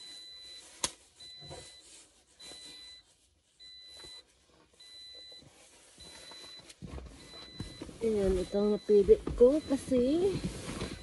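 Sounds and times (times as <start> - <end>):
car warning chime beeping: 0.0 - 11.0
handling knocks and rustles: 4.0 - 11.0.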